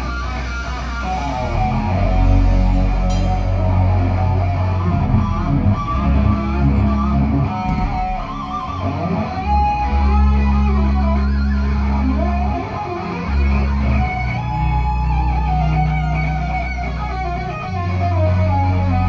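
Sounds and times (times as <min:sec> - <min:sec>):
rock band playing loud: 0:00.0 - 0:19.0.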